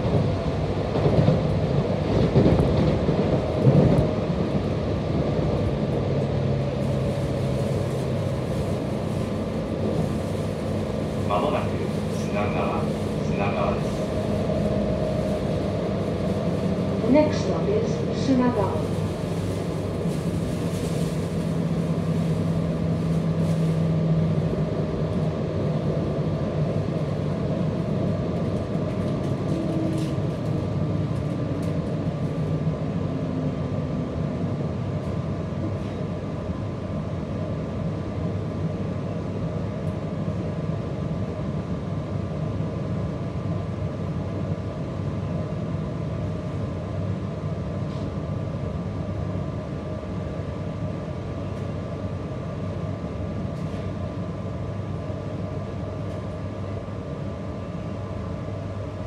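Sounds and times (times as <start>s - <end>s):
low train hum: 0.0s - 59.0s
train wheels rumbling on rail: 0.0s - 59.0s.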